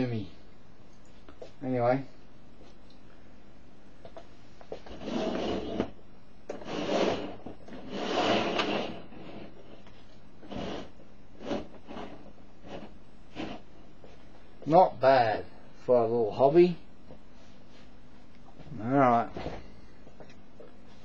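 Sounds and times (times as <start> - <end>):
plastic boxes scraping on tabletop: 4.8 - 13.7.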